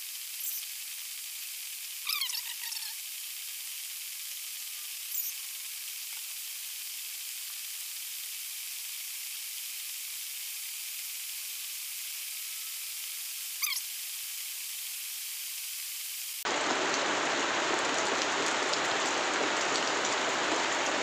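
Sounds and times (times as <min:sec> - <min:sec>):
steady high hiss: 0:00.0 - 0:17.5
short falling chirp: 0:13.6 - 0:13.8.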